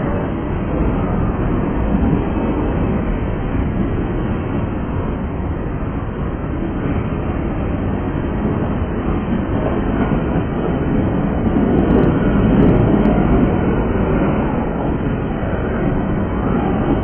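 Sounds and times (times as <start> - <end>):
freight train wheels rolling: 0.0 - 17.0.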